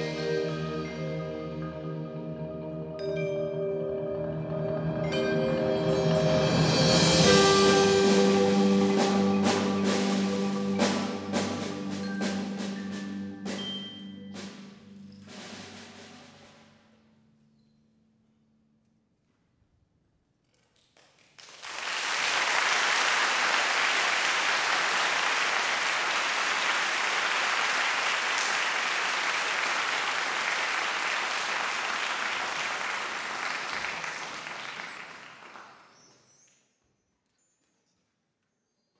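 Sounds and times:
audience applauding: 21.1 - 36.0.

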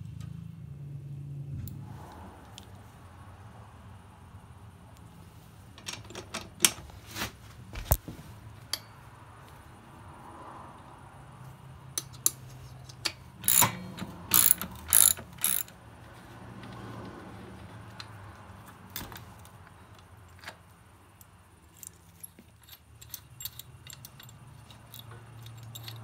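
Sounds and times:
ratchet wrench clicking: 12.0 - 15.8, 22.7 - 26.0.

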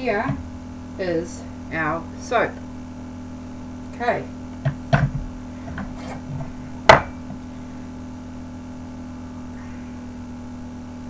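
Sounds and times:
sharp knock of soap cutter: 6.9 - 7.4.

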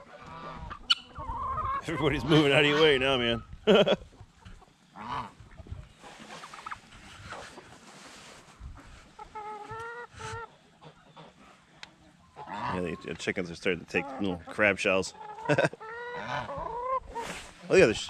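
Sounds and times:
poultry clucking and calling: 0.0 - 18.0.

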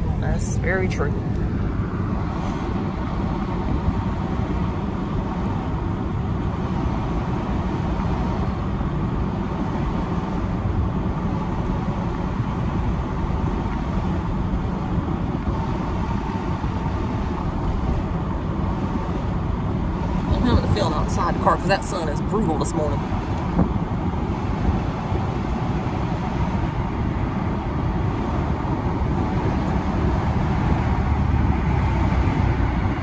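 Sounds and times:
car road rumble from inside: 0.0 - 33.0.

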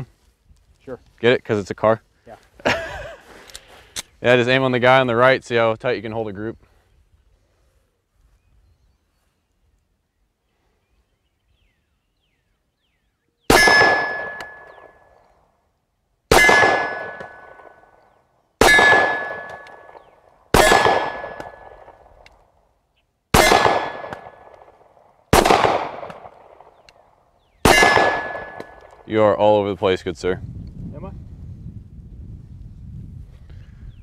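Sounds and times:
pistol shots: 13.5 - 15.0, 16.3 - 17.8, 18.6 - 22.1, 23.3 - 26.8, 27.6 - 29.0
steel target ringing: 13.5 - 15.0, 16.3 - 17.8, 18.6 - 21.8, 27.7 - 28.8.

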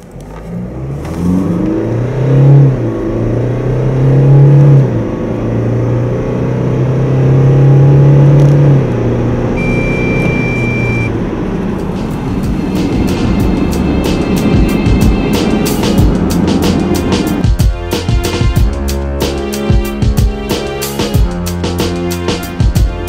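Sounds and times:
car engine accelerating: 0.0 - 17.6
high electronic beep: 9.6 - 11.1.

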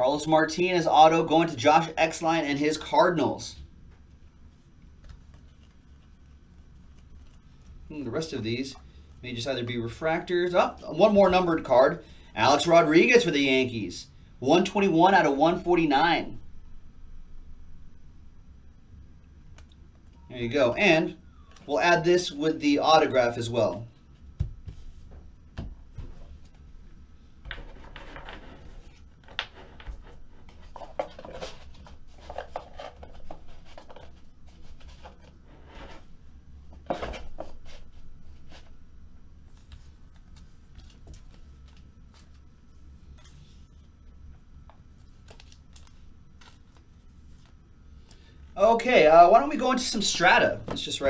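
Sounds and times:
cards rustling and sliding: 27.5 - 36.1, 39.5 - 44.0, 45.0 - 47.6.

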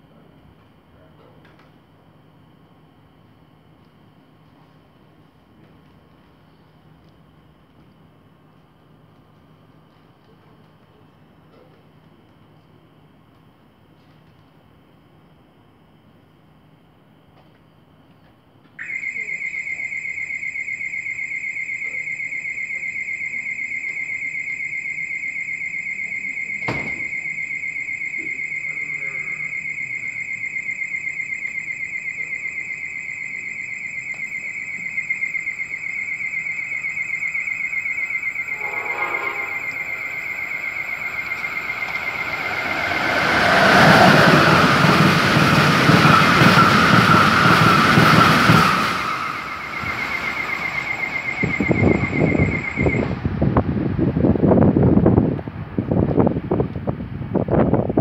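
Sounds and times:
pulsing insect trill: 18.8 - 53.2
train passing at speed: 38.4 - 58.0.

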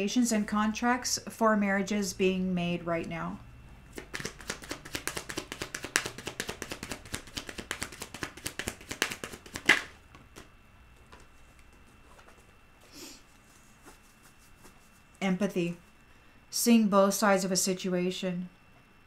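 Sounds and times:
cards shuffled by hand: 3.9 - 12.5
card deck snapping together: 4.0 - 10.5.

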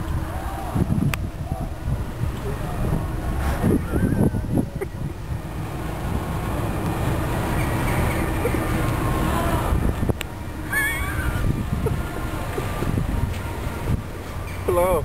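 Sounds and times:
wind on microphone: 0.0 - 14.4
boat engine rumble: 0.0 - 15.0.

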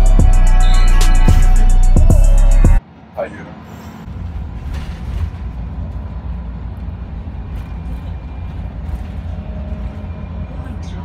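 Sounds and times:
bus engine and road noise: 2.7 - 11.0.

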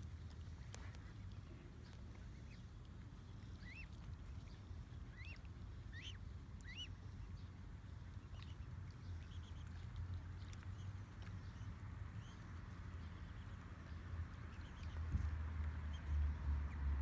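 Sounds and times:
low steady background hum: 0.0 - 17.0
cygnets peeping: 0.1 - 17.0.

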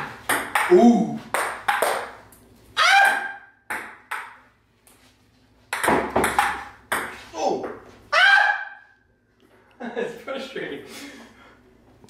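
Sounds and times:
ping pong ball clicking off paddles: 0.0 - 2.3, 3.0 - 4.4, 5.7 - 7.2.

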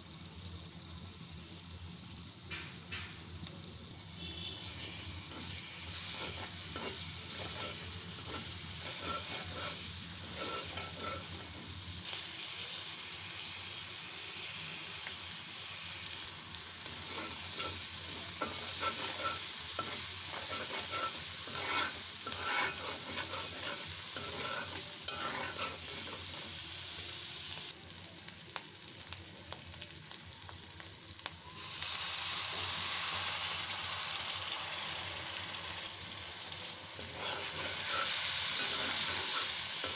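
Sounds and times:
spice paste sizzling in oil: 0.0 - 39.9
metal spatula scraping pan: 4.7 - 11.6, 16.9 - 26.6, 37.0 - 39.9.

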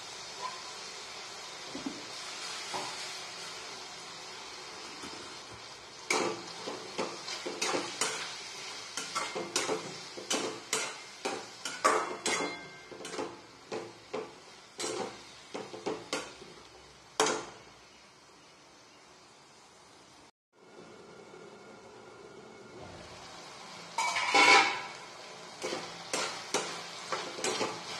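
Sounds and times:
quiet sizzle: 0.0 - 27.9
spatula scraping a metal wok: 6.1 - 13.8, 14.8 - 16.4, 24.0 - 27.9.

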